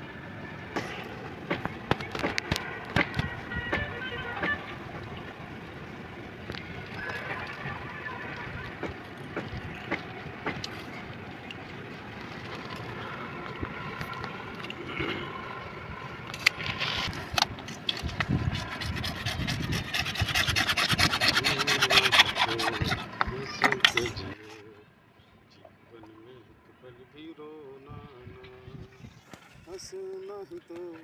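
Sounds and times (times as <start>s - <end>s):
pipe handling clicks and scrapes: 16.3s - 24.6s
fast rhythmic scraping strokes: 17.8s - 24.3s.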